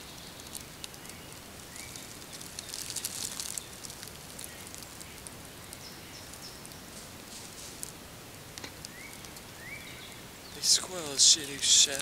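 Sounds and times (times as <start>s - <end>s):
footsteps crunching dry leaves: 1.3s - 5.4s.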